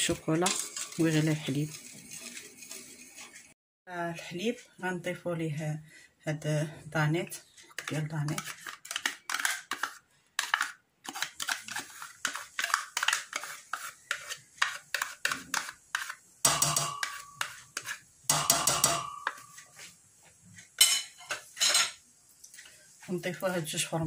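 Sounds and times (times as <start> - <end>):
metal spoon scraping plastic cups: 0.0 - 3.5, 7.3 - 18.0
clattering knocks on saucepan: 16.5 - 17.2, 18.3 - 19.4.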